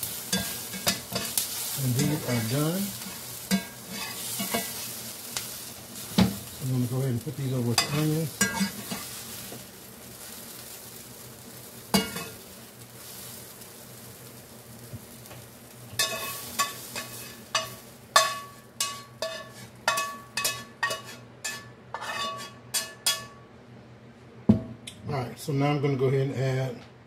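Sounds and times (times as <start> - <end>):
utensil clinking on skillet: 0.0 - 6.4, 7.7 - 9.6, 11.9 - 12.4, 16.0 - 23.4
skillet sizzling: 0.0 - 23.4.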